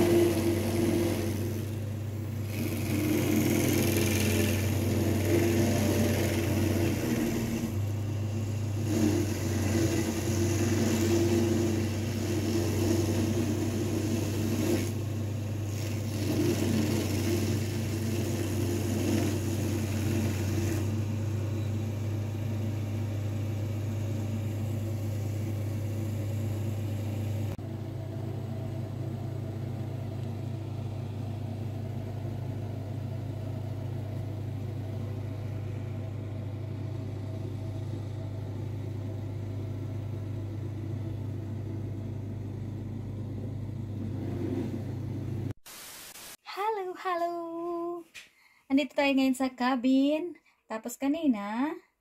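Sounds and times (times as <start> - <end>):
cutter wheel grinding stump: 0.0 - 21.0
stump grinder engine running: 0.0 - 21.1.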